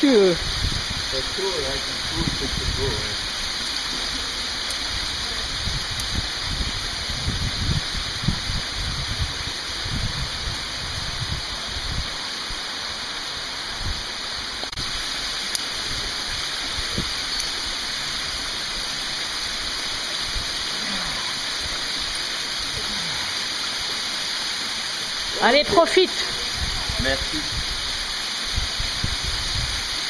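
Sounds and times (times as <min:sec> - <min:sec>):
water rushing down rock walls: 0:00.0 - 0:30.0
wind buffeting on microphone: 0:00.2 - 0:12.2, 0:15.8 - 0:17.2, 0:25.3 - 0:30.0.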